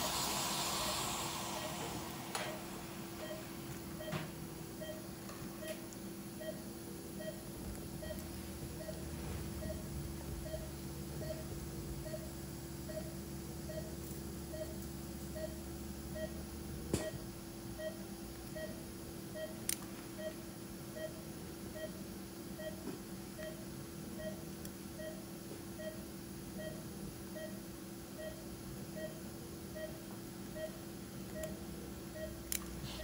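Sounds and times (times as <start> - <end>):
low equipment hum: 0.0 - 33.0
patient monitor beeping: 0.8 - 2.6, 3.2 - 9.0, 9.6 - 13.9, 14.5 - 15.6, 16.2 - 16.4, 17.8 - 22.0, 22.6 - 23.6, 24.2 - 25.2, 25.8 - 26.0, 29.0 - 29.2, 30.6 - 32.4.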